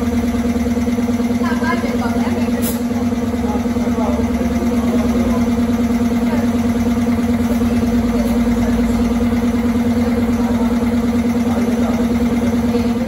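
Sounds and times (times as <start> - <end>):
motorcycle engine idling: 0.0 - 13.0.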